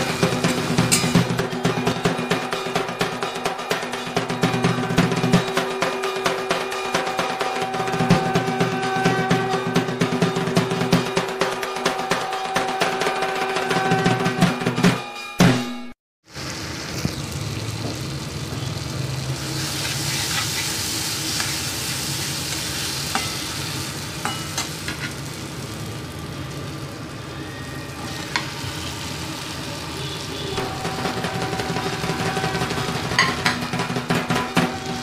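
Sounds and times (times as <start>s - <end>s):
steel spatula clinking on pan: 0.4s - 1.3s, 23.1s - 23.6s, 24.2s - 25.2s, 33.1s - 33.7s
masala sizzling in a pan: 16.2s - 35.0s.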